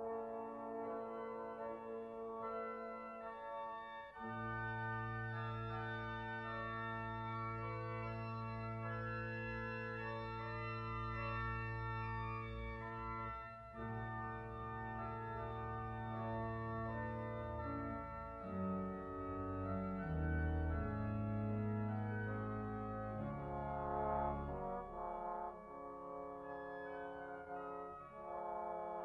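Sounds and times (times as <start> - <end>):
slow instrumental chords: 17.6 - 29.0.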